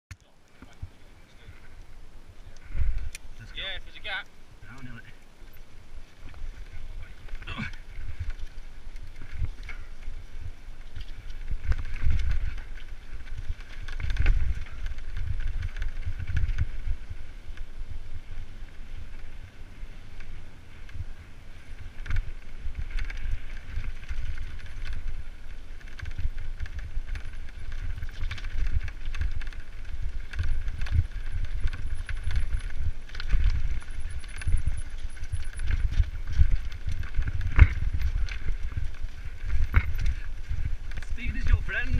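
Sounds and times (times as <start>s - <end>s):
bike tyres rumbling over stones: 0.5s - 41.9s
bike knocking on rocks: 10.8s - 17.6s, 21.7s - 41.9s.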